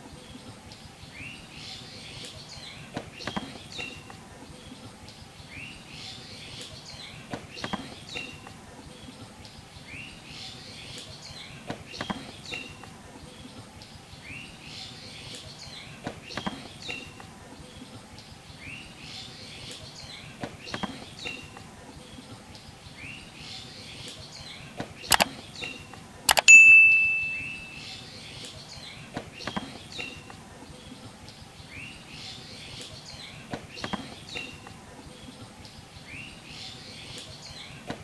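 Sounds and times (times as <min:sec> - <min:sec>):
birds chirping: 0:00.0 - 0:38.0
sharp clicks: 0:25.1 - 0:26.5.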